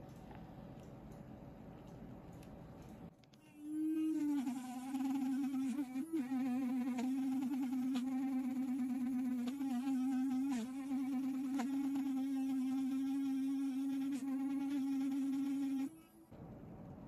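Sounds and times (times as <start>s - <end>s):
electric brush buzzing: 3.7s - 16.2s.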